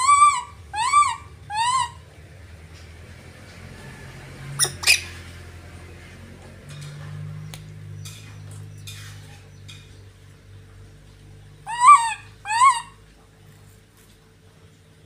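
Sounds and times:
young monkey calling: 0:00.0 - 0:02.1, 0:04.6 - 0:05.2, 0:11.6 - 0:13.0.

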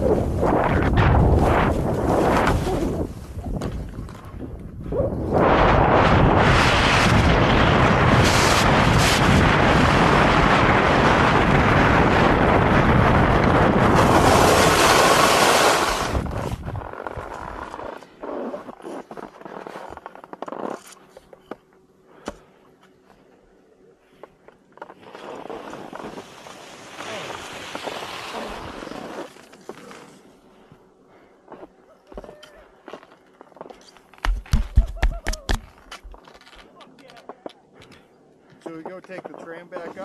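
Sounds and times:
skis hissing over snow: 0:00.0 - 0:03.4, 0:14.0 - 0:16.2, 0:25.0 - 0:30.3
skis scraping and clicking on snow: 0:00.0 - 0:04.4, 0:08.0 - 0:09.3, 0:13.6 - 0:21.4, 0:24.5 - 0:30.4, 0:38.6 - 0:40.0.

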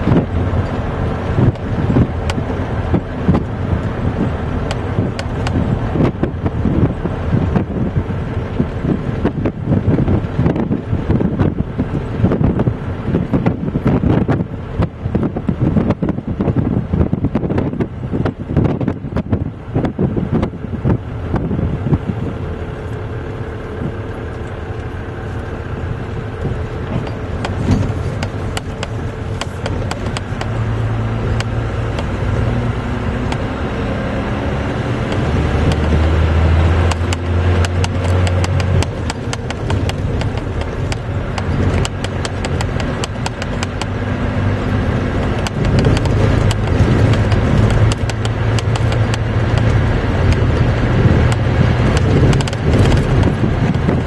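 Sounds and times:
diesel engine pulling a load: 0:00.0 - 0:54.0
clicking and rattling: 0:00.1 - 0:06.6, 0:26.4 - 0:32.2, 0:35.1 - 0:36.0, 0:36.8 - 0:44.0, 0:44.9 - 0:54.0.

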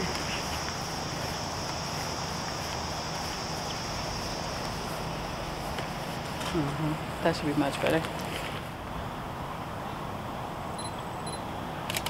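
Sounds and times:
insect chorus: 0:00.0 - 0:07.2.

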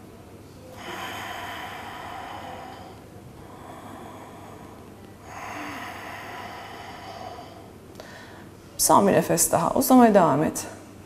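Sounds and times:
woman breathing slowly: 0:00.6 - 0:08.8.

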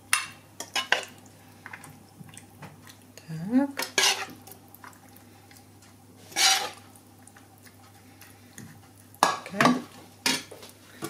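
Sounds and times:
metal spoon scraping frying pan: 0:03.8 - 0:04.4, 0:06.2 - 0:06.8.

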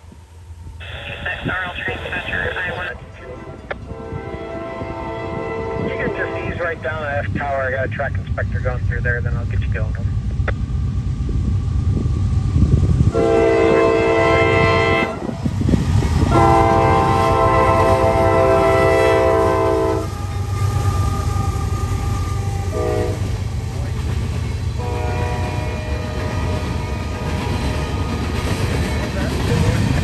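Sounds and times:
train rumbling: 0:00.0 - 0:30.0
locomotive air horn: 0:03.2 - 0:06.8, 0:13.1 - 0:15.4, 0:16.3 - 0:23.4, 0:24.8 - 0:27.3.

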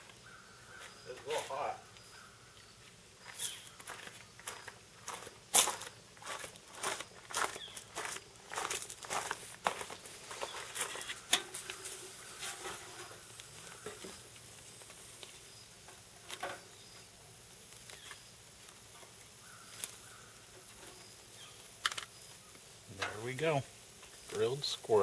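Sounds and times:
tongs clicking on grill grate: 0:11.0 - 0:11.9
sharp clicks and crunches: 0:21.8 - 0:22.2.

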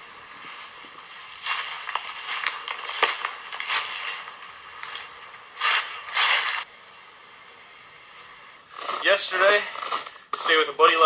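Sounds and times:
footsteps crunching dry leaves: 0:00.6 - 0:06.7.

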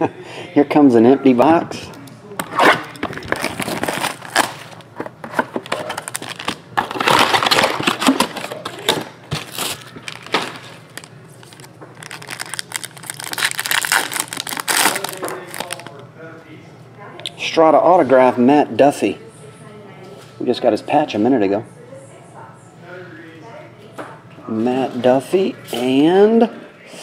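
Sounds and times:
foil wrapper crinkling: 0:02.6 - 0:16.0.

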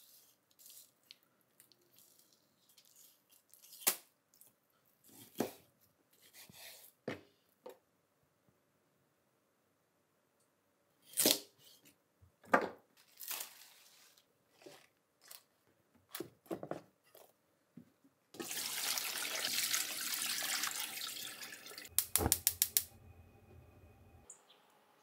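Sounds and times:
water running into pot: 0:18.4 - 0:22.8
low hum: 0:21.9 - 0:25.0
gas stove igniter clicking: 0:22.0 - 0:22.9.

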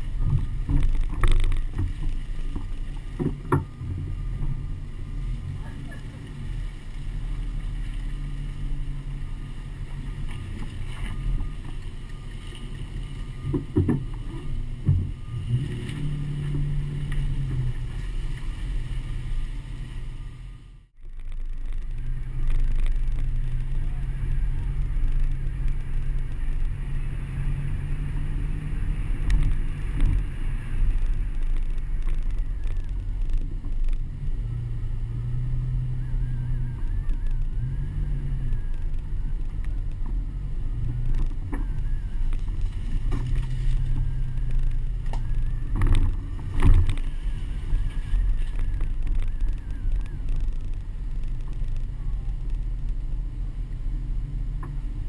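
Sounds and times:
vehicle engine humming: 0:00.0 - 0:55.0
wind rumble on camera: 0:00.0 - 0:55.0.

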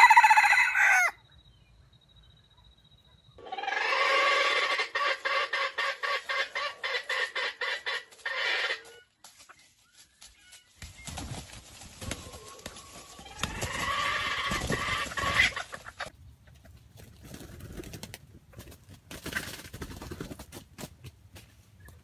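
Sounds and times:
rooster calling: 0:00.0 - 0:01.2, 0:03.4 - 0:09.1.

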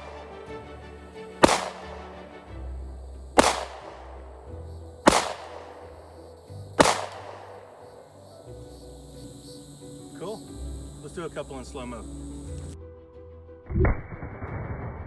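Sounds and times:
pistol shots echoing: 0:01.4 - 0:02.1, 0:03.4 - 0:04.2, 0:05.0 - 0:07.8.

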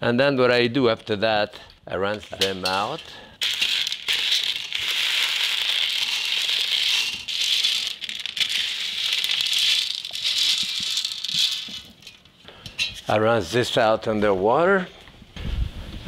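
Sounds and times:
beans rattling into metal strainer: 0:02.2 - 0:12.3.

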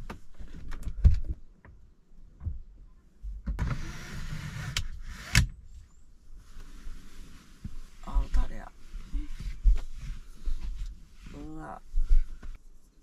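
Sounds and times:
blind sliding rasp: 0:03.6 - 0:05.4.

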